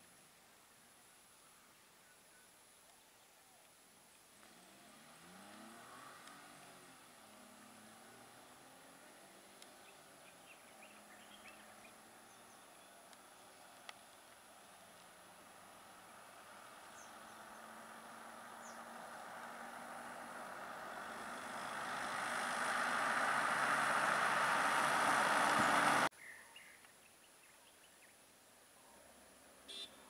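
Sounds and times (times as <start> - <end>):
faint bird chirps: 1.3 - 3.8, 9.0 - 14.8, 16.8 - 19.0, 26.1 - 30.0
pickup truck driving past: 4.4 - 12.5, 14.6 - 26.1.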